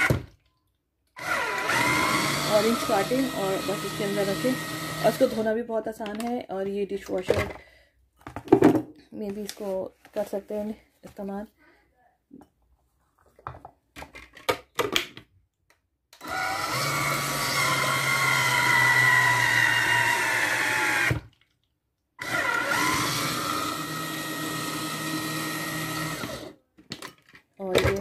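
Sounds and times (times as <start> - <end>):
juicer motor spinning: 0.0 - 0.3, 1.2 - 5.5, 16.2 - 21.3, 22.2 - 26.6.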